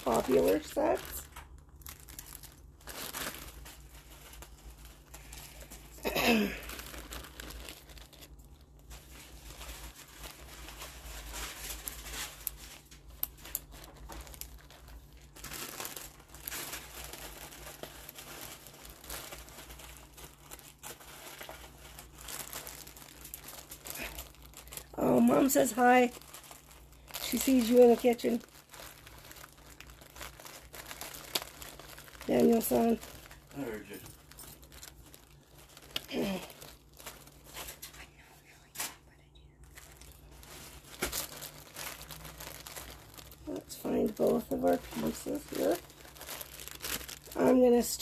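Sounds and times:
plastic bag crinkling: 0.0s - 48.0s.

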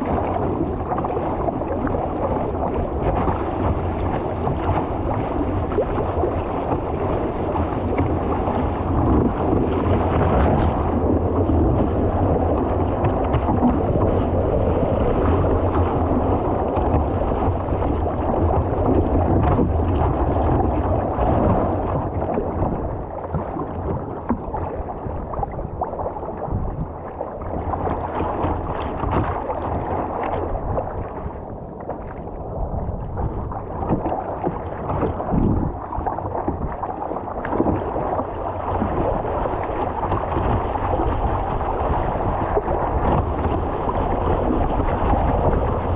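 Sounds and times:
water rushing along boat hull: 0.0s - 45.9s
wind buffeting microphone: 0.0s - 45.9s.

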